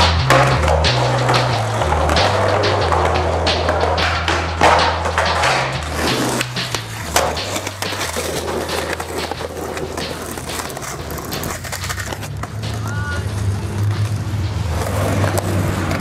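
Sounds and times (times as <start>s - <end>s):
deep bassline: 0.0s - 16.0s
sharp percussive hits: 0.0s - 16.0s.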